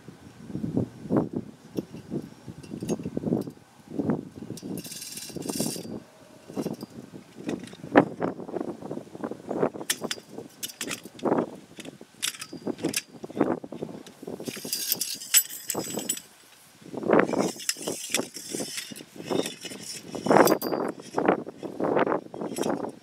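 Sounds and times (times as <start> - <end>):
wind buffeting microphone: 0.0 - 23.0
metal chain jangling: 4.6 - 7.8, 12.2 - 13.1, 14.5 - 16.3, 17.3 - 21.3.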